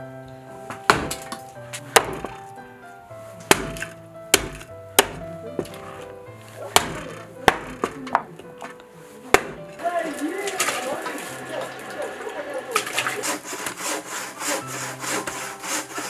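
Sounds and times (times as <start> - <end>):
background music: 0.0 - 16.0
cleaver chopping through bone: 0.9 - 1.3, 2.0 - 2.4, 3.5 - 6.1, 6.7 - 8.3, 9.3 - 9.7.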